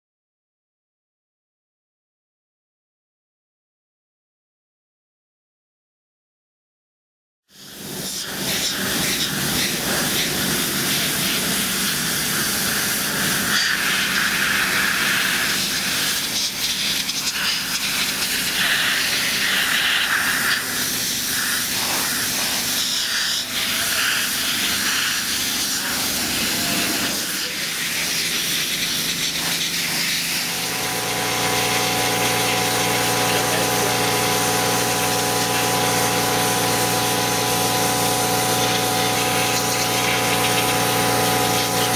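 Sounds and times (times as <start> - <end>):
pressure washer jet hissing: 7.7 - 41.9
steady machine hum: 23.6 - 41.9.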